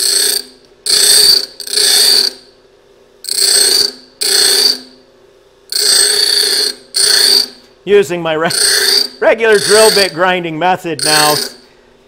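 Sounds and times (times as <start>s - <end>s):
grinder wheel grinding drill bit: 0.0s - 2.4s, 5.7s - 7.6s, 8.5s - 10.2s, 11.0s - 11.7s
grinder motor hum: 3.2s - 5.0s, 5.7s - 11.8s.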